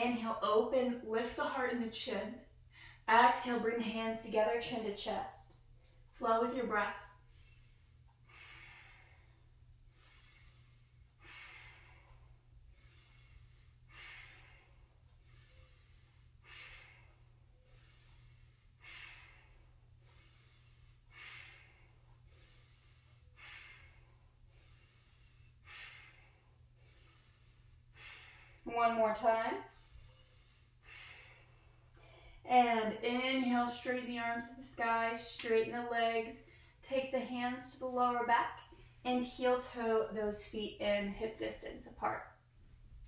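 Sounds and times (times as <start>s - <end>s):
woman breathing: 2.4s - 3.1s, 5.0s - 32.5s, 35.9s - 40.4s.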